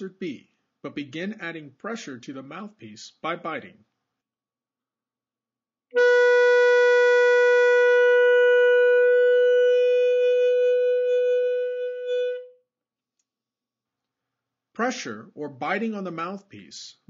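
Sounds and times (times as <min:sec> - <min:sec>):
saxophone long tone: 0:05.9 - 0:12.6.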